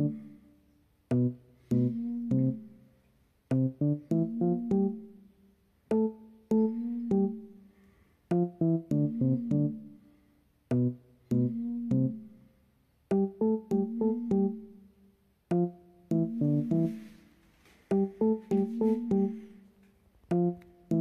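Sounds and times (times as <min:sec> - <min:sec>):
light keyboard tune: 0:00.0 - 0:00.3, 0:01.1 - 0:02.8, 0:03.5 - 0:05.3, 0:05.9 - 0:07.6, 0:08.3 - 0:10.0, 0:10.7 - 0:12.3, 0:13.1 - 0:14.8, 0:15.5 - 0:21.0.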